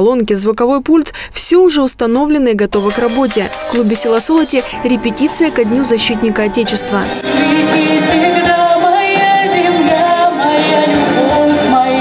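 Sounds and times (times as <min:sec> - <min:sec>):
instrumental accompaniment: 0:02.8 - 0:08.6
woman singing into microphone: 0:03.1 - 0:12.0.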